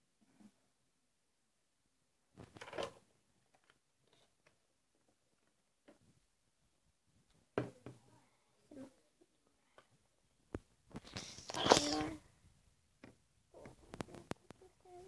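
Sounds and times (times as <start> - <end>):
objects handled on a tabletop: 2.3 - 6.3.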